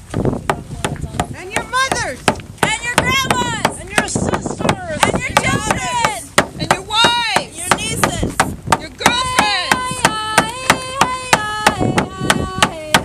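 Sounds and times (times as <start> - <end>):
women singing: 2.6 - 13.0.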